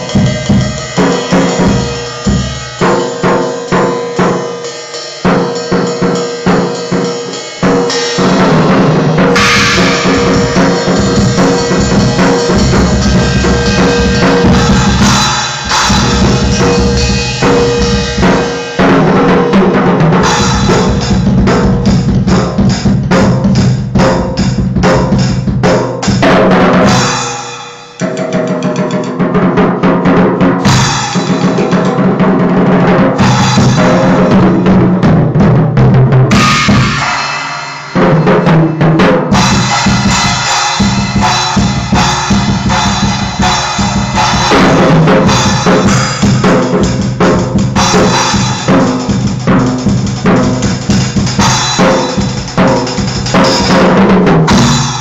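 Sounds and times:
crashing cymbals: 0.0s - 19.0s, 20.2s - 23.0s, 26.9s - 28.0s, 30.6s - 32.2s, 36.3s - 53.9s, 54.5s - 55.0s
drum kit played with sticks: 0.0s - 55.0s.

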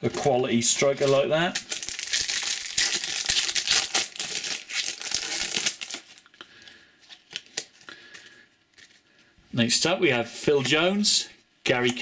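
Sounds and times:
foil wrapper crinkling: 0.8s - 6.3s.

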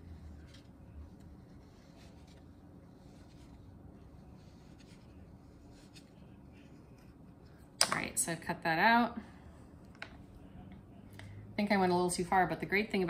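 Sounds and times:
needle tool scratching clay: 0.0s - 7.1s.

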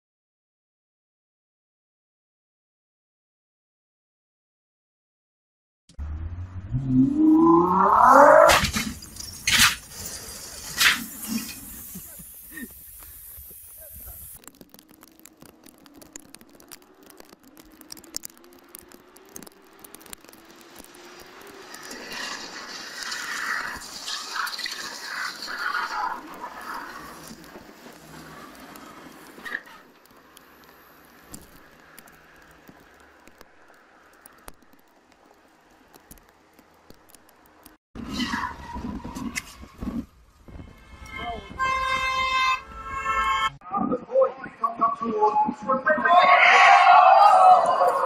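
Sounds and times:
street noise: 5.9s - 48.0s
raindrops tapping on a car: 12.0s - 37.8s
car horn: 40.5s - 43.6s.

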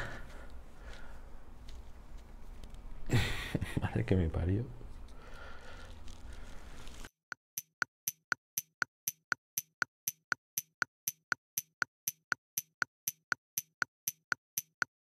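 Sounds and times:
fast clock ticking: 7.5s - 15.0s.

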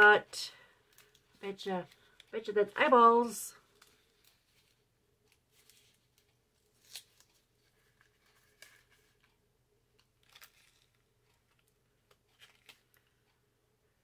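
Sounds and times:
packet rustling and tearing: 10.2s - 13.1s.

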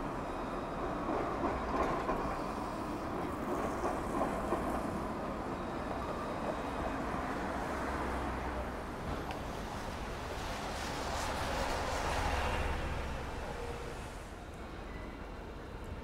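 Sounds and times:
traffic on wet road: 7.1s - 14.3s.

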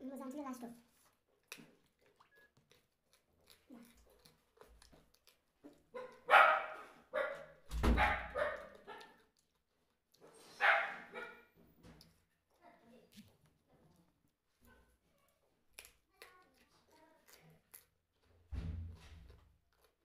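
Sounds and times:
dog barking: 5.9s - 9.2s, 10.5s - 11.6s.

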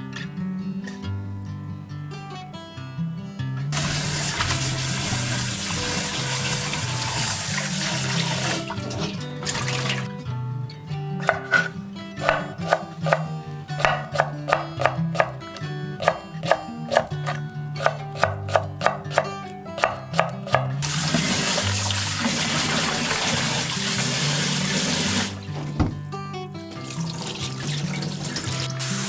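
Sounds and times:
tap water running into metal bowl: 3.8s - 10.1s, 20.8s - 25.4s, 26.8s - 29.0s
knife chopping on wooden board: 11.2s - 15.4s, 16.0s - 20.7s.

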